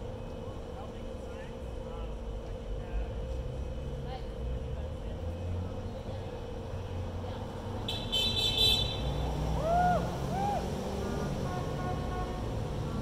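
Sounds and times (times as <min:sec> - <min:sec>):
road traffic: 0:00.0 - 0:13.0
car horns honking: 0:07.8 - 0:09.3, 0:11.0 - 0:13.0
faint steady horn tone: 0:07.8 - 0:09.4, 0:11.0 - 0:13.0.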